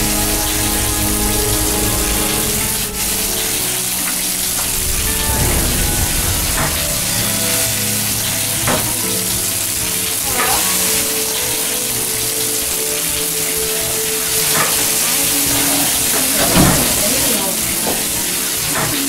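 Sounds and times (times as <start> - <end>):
low synthesizer notes: 0.0 - 10.4
loud steady hiss: 0.0 - 19.0.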